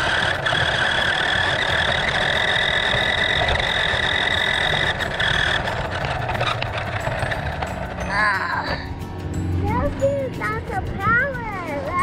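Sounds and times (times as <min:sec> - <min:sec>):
toy car electric motor whine: 0:00.0 - 0:08.9.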